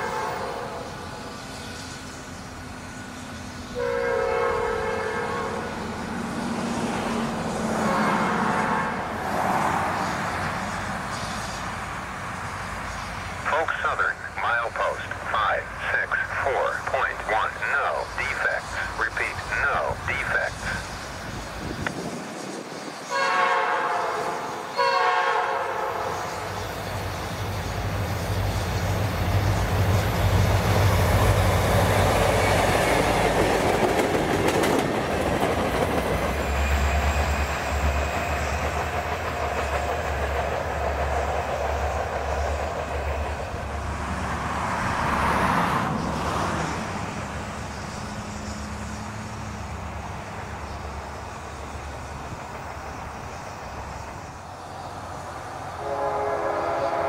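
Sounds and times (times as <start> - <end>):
train horn blasts: 0.0 - 0.9, 3.7 - 5.8, 7.8 - 9.1, 23.1 - 26.5, 55.8 - 57.0
diesel locomotive engine drone: 0.0 - 57.0
train wheels clacking on rails: 26.1 - 44.5.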